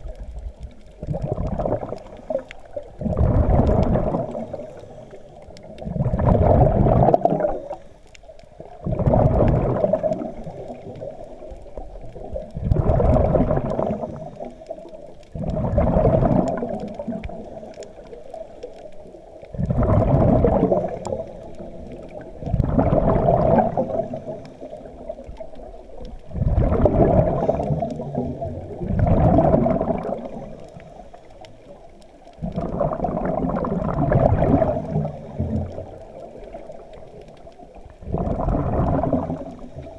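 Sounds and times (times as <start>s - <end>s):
exhaled bubbles gurgling underwater: 0.0s - 39.9s.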